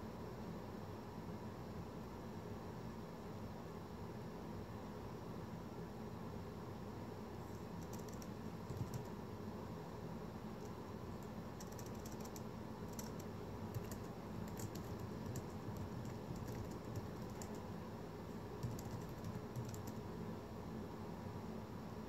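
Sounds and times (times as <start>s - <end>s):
faint irregular ticks: 7.5s - 9.2s, 10.6s - 17.7s, 18.6s - 20.0s.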